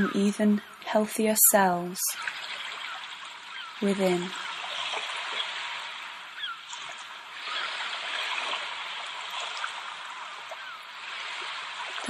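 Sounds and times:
ocean waves washing: 0.0 - 12.0
faint bird calls: 2.1 - 8.7, 10.0 - 11.0.

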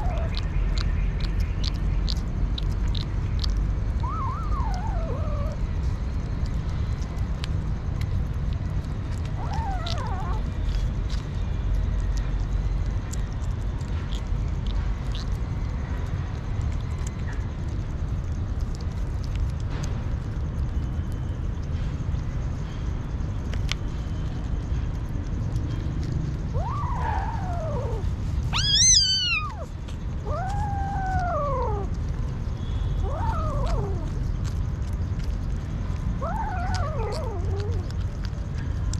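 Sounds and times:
kitten wavering call: 0.0 - 0.8, 1.6 - 5.7, 9.3 - 10.6, 26.5 - 32.2, 33.0 - 34.3, 36.2 - 38.4
kittens chewing and smacking: 0.0 - 38.9
low background rumble: 0.0 - 38.9.

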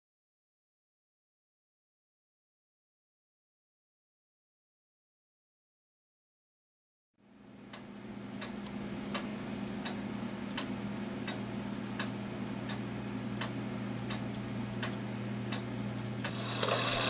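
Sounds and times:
steady low hum: 7.2 - 17.0.

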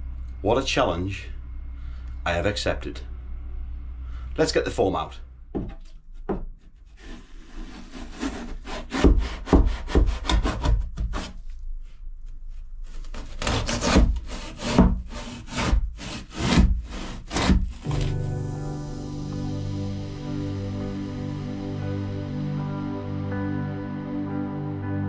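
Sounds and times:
hand saw sawing foam: 6.7 - 11.4, 12.9 - 18.2
music: 17.3 - 25.0.

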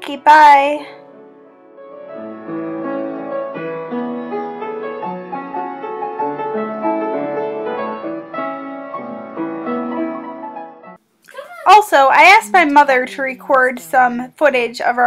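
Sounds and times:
piano melody over chords: 0.9 - 11.0.

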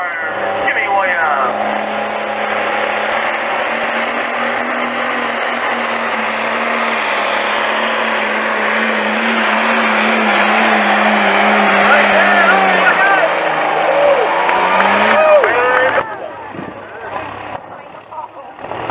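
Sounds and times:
tractor engine at full throttle: 0.0 - 18.9.

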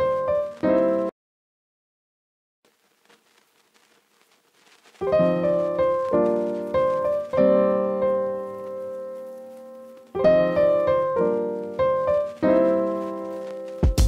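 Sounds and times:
piano music: 0.0 - 1.1, 5.0 - 14.0.

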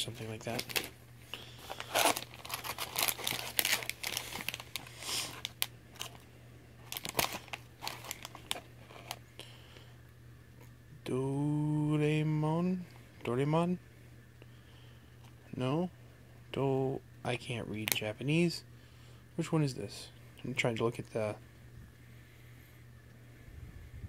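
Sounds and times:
plastic packaging crinkling: 0.0 - 6.2, 6.8 - 9.2.

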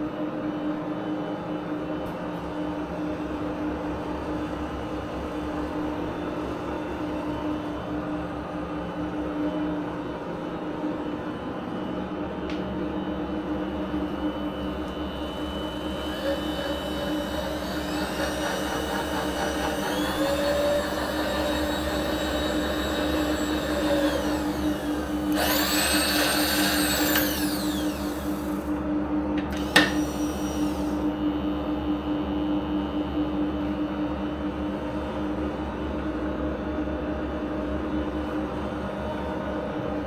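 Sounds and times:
steady machine hum: 0.0 - 40.0
power feed motor whining: 14.6 - 31.2.

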